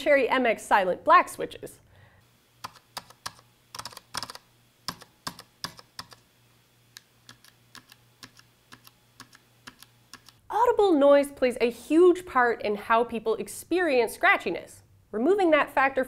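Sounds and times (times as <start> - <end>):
mechanical keyboard keys clacking: 2.6 - 6.2.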